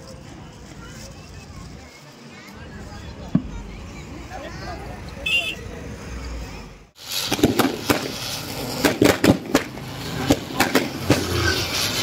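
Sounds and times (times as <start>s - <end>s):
ground spinner firework hissing: 0.0s - 12.0s
firework pops: 3.3s - 3.6s, 7.0s - 11.4s.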